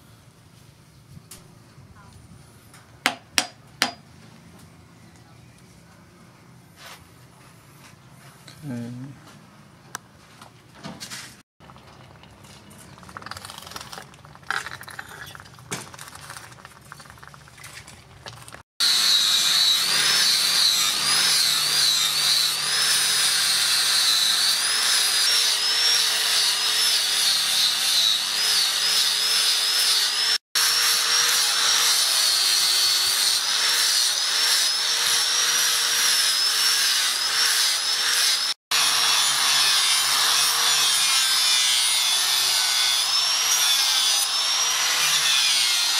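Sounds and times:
angle grinder grinding steel: 18.8 - 45.9.

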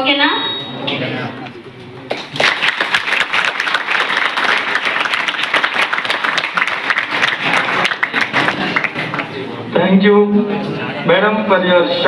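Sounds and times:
crowd applauding: 2.1 - 9.6.

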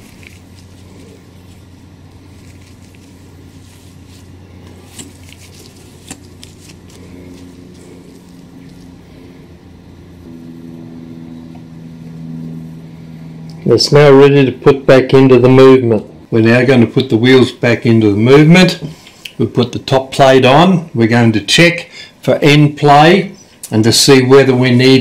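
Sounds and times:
higher hum: 0.0 - 14.9
low machine hum: 0.0 - 25.0.

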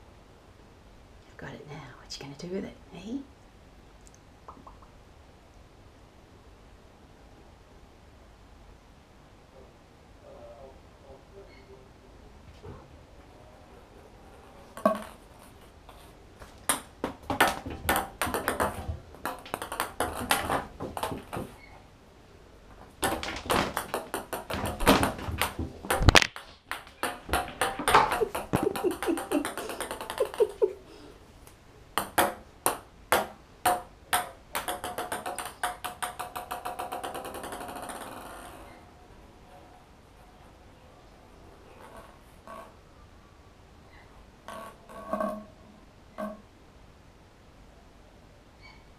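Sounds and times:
ping pong ball bouncing in bathtub: 14.8 - 15.2, 16.7 - 21.6, 23.0 - 30.7, 32.0 - 38.5.

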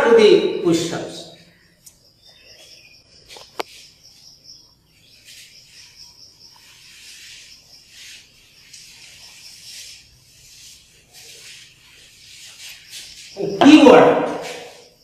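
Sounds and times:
insects chirring: 0.1 - 15.0
duster rubbing blackboard: 6.6 - 13.4.

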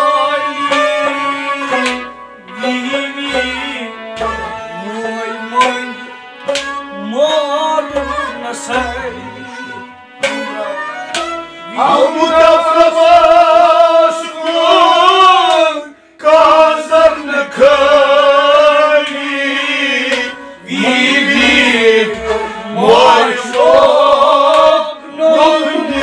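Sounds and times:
sliding vocal melody: 0.0 - 26.0
drum strokes: 7.9 - 13.6, 19.8 - 26.0.

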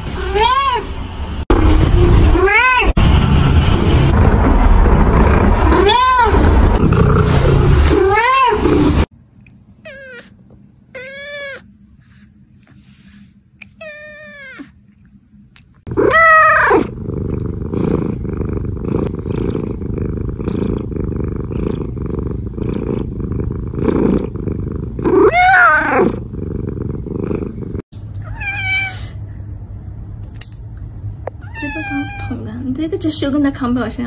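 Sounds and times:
cat purring: 4.1 - 5.8, 15.9 - 27.8
cat meowing: 10.9 - 11.7, 13.7 - 14.7, 16.0 - 16.9, 28.2 - 29.1, 31.4 - 32.4.

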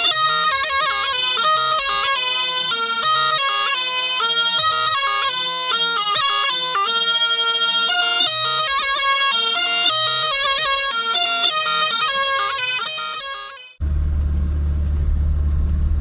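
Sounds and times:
bagpipe playing fast melody: 0.0 - 13.8.

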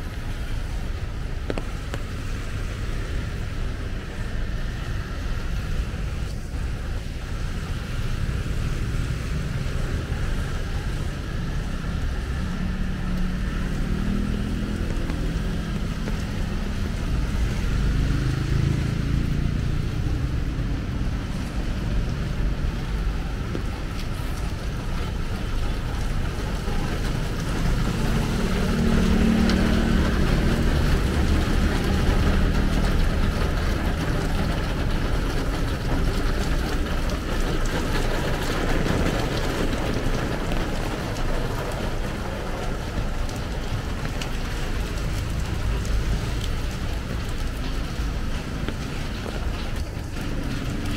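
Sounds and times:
car engines passing: 0.0 - 50.9
tyres hissing on wet road: 0.0 - 50.9.

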